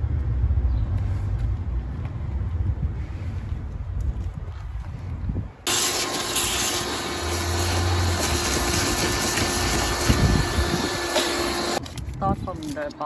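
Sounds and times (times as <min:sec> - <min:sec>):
shop vacuum running: 0:05.7 - 0:11.8.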